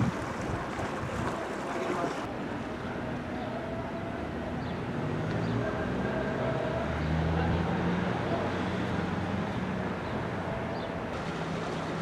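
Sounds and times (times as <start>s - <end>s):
water lapping: 0.0s - 2.3s, 11.1s - 12.0s
wind: 0.0s - 12.0s
boat engine drone: 1.4s - 12.0s.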